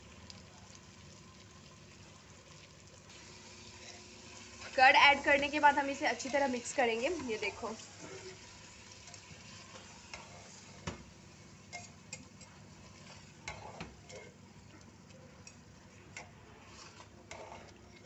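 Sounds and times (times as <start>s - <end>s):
food sizzling: 0.0s - 18.0s
spoon scraping metal pot: 6.1s - 7.5s, 12.8s - 14.4s, 16.2s - 18.0s.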